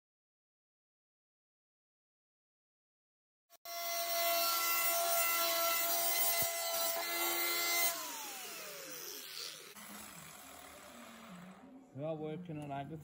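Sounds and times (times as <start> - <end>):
angle grinder cutting steel: 3.6 - 11.8
grinder disc spinning down: 7.0 - 11.7.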